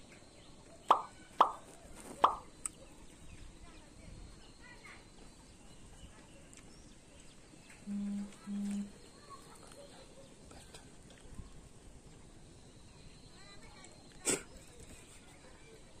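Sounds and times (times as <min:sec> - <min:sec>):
faint bird chirps: 0:00.0 - 0:16.0
low outdoor background: 0:00.0 - 0:16.0
short low hums: 0:07.8 - 0:08.9.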